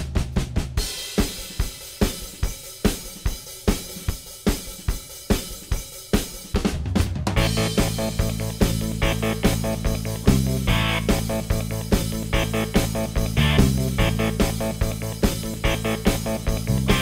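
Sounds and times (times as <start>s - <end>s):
drum kit playing a steady beat: 0.0s - 17.0s
bass and pitched instruments: 7.2s - 17.0s.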